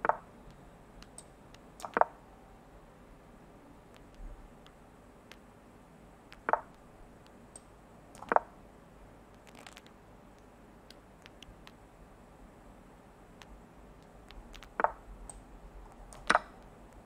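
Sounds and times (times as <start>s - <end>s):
faint clicks: 0.0s - 2.2s, 3.8s - 5.5s, 6.3s - 8.6s, 9.3s - 11.8s, 13.4s - 17.0s.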